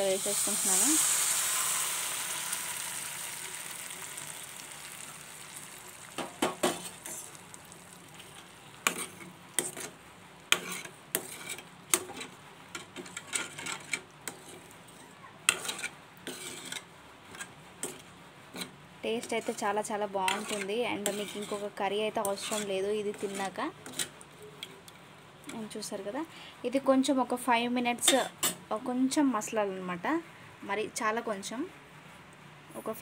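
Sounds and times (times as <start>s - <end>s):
liquid sizzling in hot pan: 0.0s - 12.2s
spoon scraping and clinking pan: 15.5s - 16.9s, 20.3s - 21.7s.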